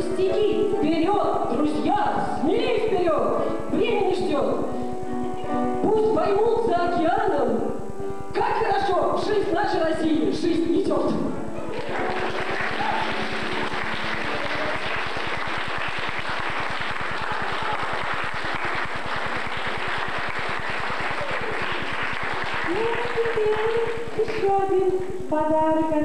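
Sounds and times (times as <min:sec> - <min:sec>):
musical accompaniment: 0:00.0 - 0:26.0
audience applauding: 0:11.7 - 0:24.5.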